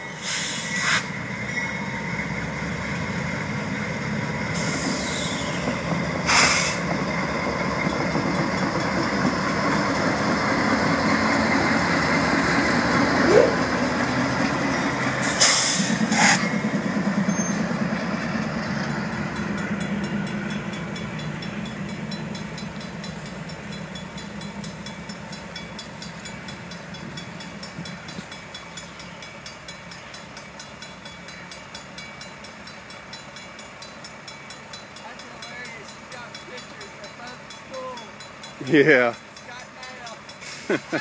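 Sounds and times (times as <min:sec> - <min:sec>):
freight train rumbling: 0:00.0 - 0:41.0.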